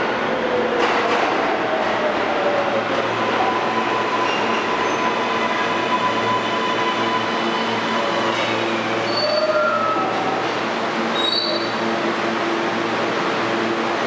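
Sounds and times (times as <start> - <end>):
subway train pulling into station: 0.0 - 14.0
high wheel squeals: 4.0 - 10.2, 11.1 - 11.8.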